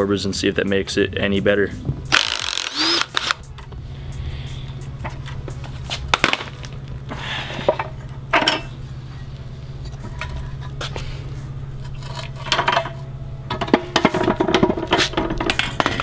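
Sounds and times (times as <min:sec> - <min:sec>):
steady low hum: 0:00.0 - 0:16.0
metal parts clanking: 0:07.7 - 0:08.7.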